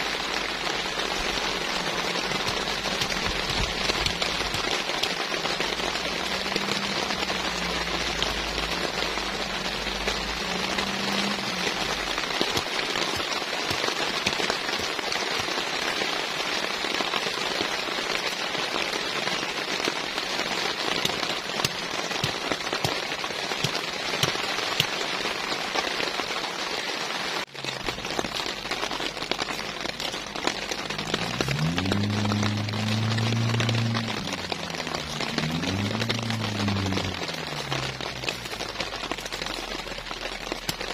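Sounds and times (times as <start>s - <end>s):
raindrops hitting a surface: 0.0s - 40.9s
steady rain falling: 0.0s - 40.9s.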